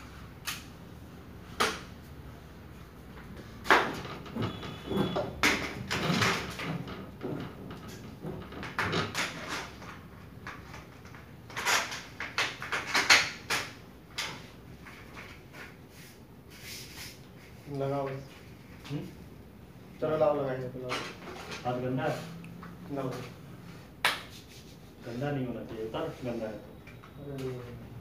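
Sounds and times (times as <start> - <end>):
handling scrapes knocks and rustles: 20.5 - 26.6.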